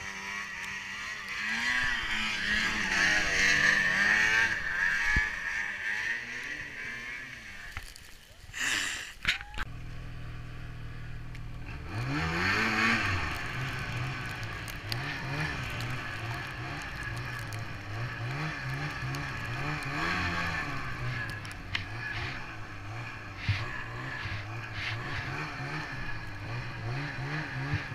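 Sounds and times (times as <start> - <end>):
snowmobile engine revving: 0.0 - 9.1, 10.0 - 27.9.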